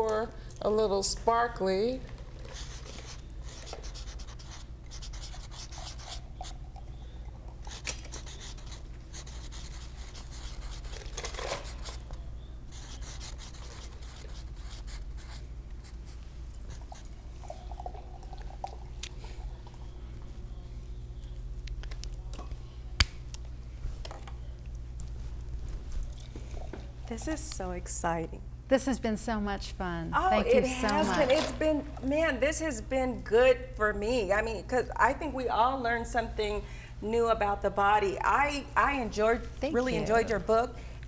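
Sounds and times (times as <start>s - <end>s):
steady low hum: 0.0s - 41.0s
marker scratching on canvas: 2.5s - 6.5s, 7.7s - 11.0s, 12.7s - 16.1s.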